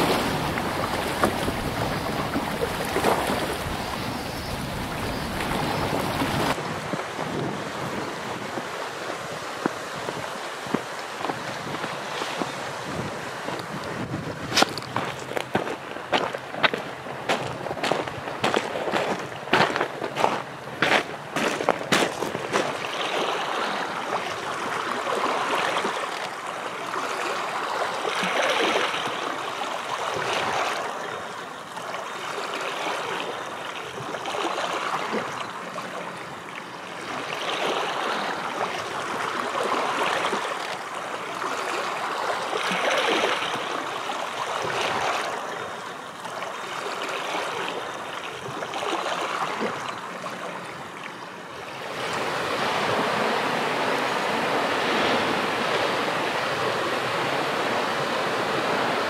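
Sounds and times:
sea surf on rocky shore: 0:00.0 - 0:59.0.

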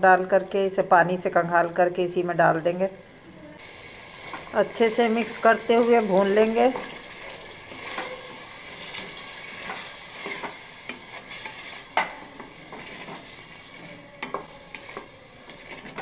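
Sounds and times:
chicken sizzling in a pot: 0:03.6 - 0:16.0
wooden spoon knocking and scraping pot: 0:05.2 - 0:16.0.

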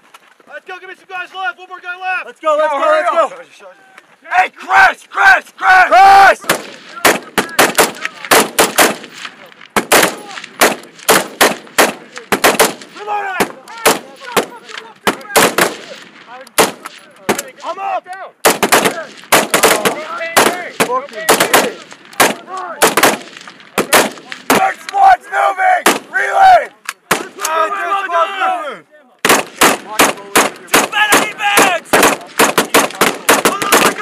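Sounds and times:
rapid rifle fire: 0:06.4 - 0:17.4, 0:18.4 - 0:24.6, 0:29.2 - 0:34.0.

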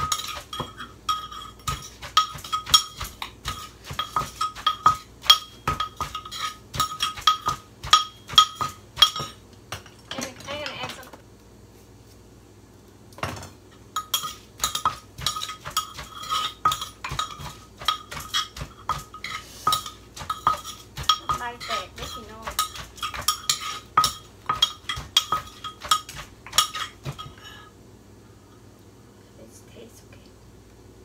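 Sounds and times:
metal spoon scraping: 0:00.0 - 0:09.4, 0:14.0 - 0:27.4
wooden pestle pounding in mortar: 0:01.6 - 0:09.9, 0:14.2 - 0:27.3.

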